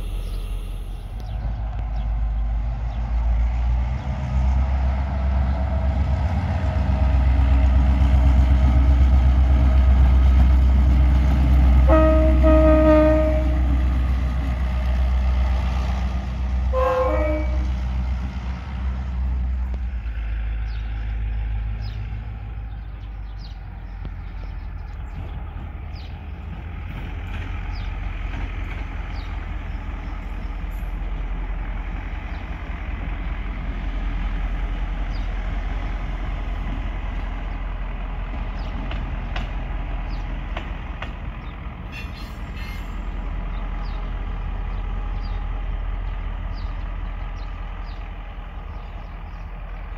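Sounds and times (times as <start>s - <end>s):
diesel locomotive engine drone: 0.0s - 49.9s
locomotive horn toot: 11.8s - 13.9s, 16.7s - 17.9s.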